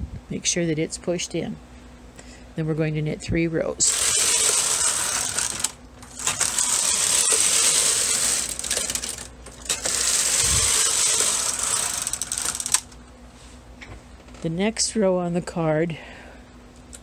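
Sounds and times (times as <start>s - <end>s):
knitting machine carriage rattling: 3.8s - 12.8s.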